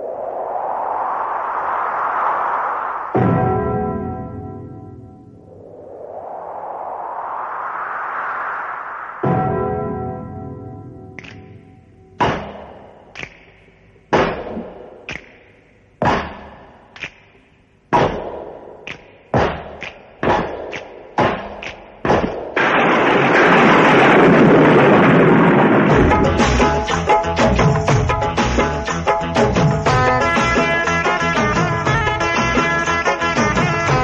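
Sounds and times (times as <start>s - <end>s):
loud continuous rushing noise: 0.0s - 10.4s.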